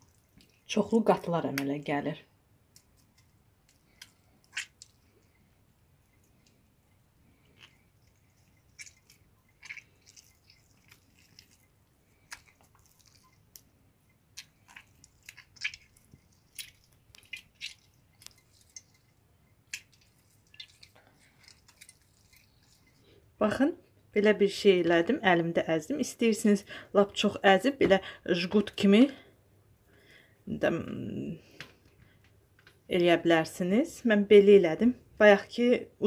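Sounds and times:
wet squishing of curd: 0.0 - 1.8, 2.5 - 24.4.

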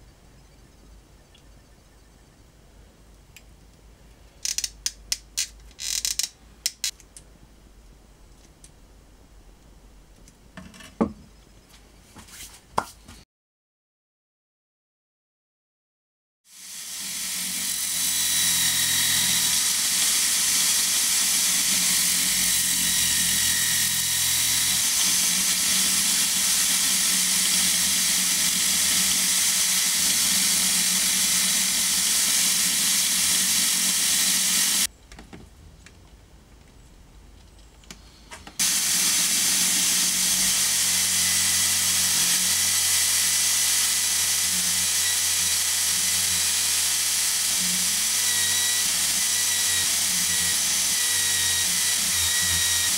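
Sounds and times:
power drill spinning abrasive disc: 16.5 - 34.9, 38.6 - 52.9.

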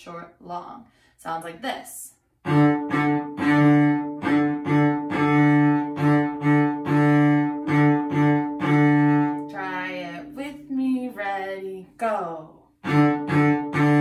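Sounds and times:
cello bowing a low note: 2.5 - 10.4, 12.8 - 14.0.

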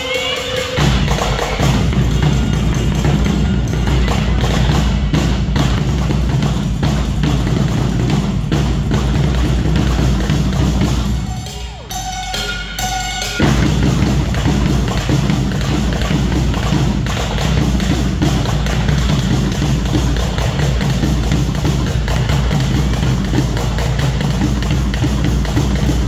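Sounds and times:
dance music with heavy drums: 0.0 - 26.0
short high notes: 10.9 - 14.3.

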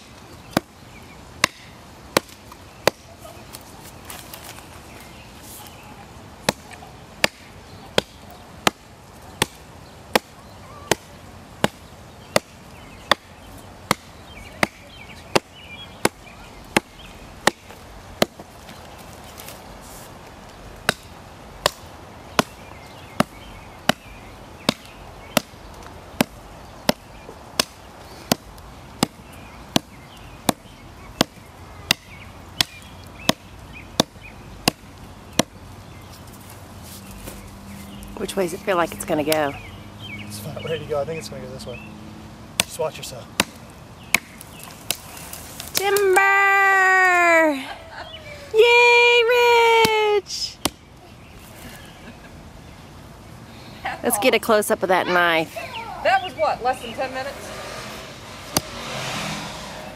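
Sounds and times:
knife chopping into tree trunk: 1.4 - 3.0, 42.6 - 42.8, 43.4 - 45.8, 58.5 - 58.8.

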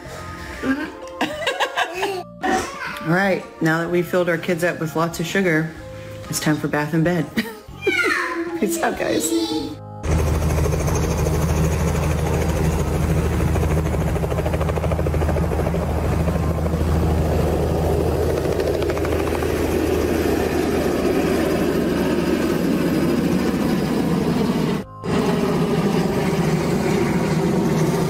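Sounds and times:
helicopter engine and rotor chop: 10.0 - 28.0.

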